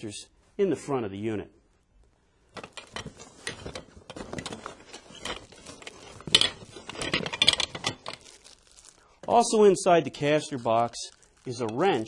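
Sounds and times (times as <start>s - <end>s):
metallic clicking and clattering: 2.6s - 8.3s.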